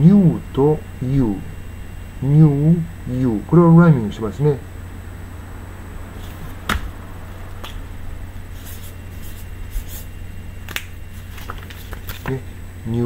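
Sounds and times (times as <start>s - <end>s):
low steady hum: 0.0s - 13.0s
marker scratching on paper: 8.5s - 10.1s.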